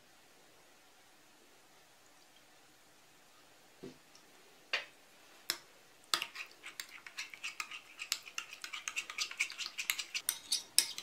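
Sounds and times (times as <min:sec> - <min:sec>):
metal spoon scraping glass bowl: 0:06.2 - 0:11.0.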